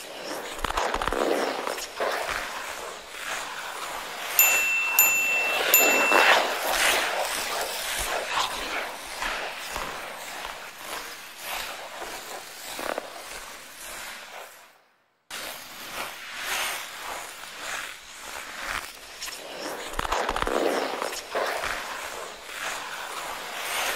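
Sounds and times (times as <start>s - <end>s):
ice skate blades scraping on ice: 0.0s - 4.4s, 7.1s - 23.9s.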